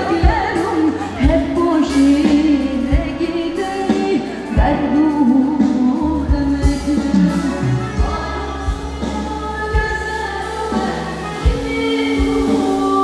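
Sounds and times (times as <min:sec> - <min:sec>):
drum beats: 0:00.0 - 0:13.0
woman singing into microphone: 0:00.0 - 0:13.0
bass line: 0:04.5 - 0:13.0.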